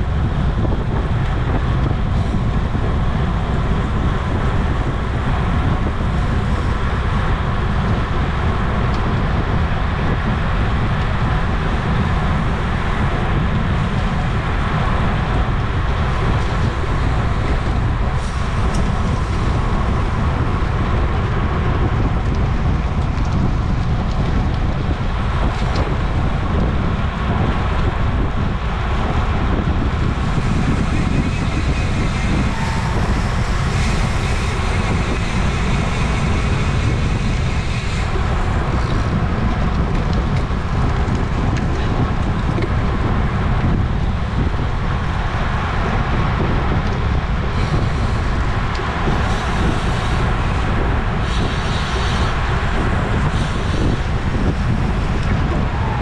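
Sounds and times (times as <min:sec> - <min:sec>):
wind rushing over microphone: 0:00.0 - 0:56.0.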